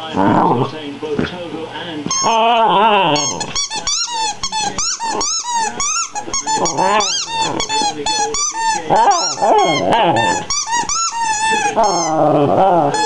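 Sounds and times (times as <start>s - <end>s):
squeaky dog toy squeaking: 2.1s - 2.6s, 3.2s - 13.0s.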